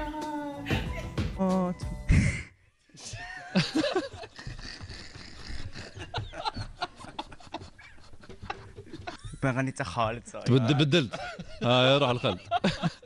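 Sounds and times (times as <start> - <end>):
people snickering and laughing: 2.1 - 9.6, 10.5 - 13.0.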